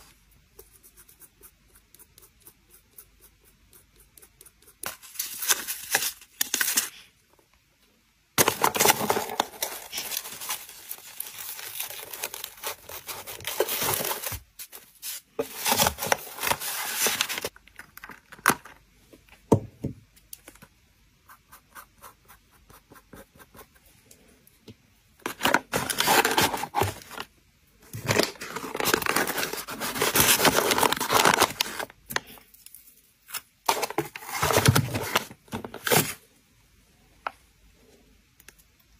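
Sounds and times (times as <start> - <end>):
paper and cardboard rustling: 8.4 - 17.6, 25.2 - 27.3, 28.0 - 31.9, 33.7 - 36.2.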